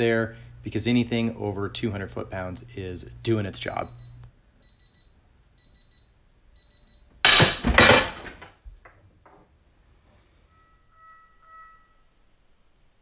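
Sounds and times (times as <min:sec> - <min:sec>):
metal bar dropping: 0:07.3 - 0:08.6.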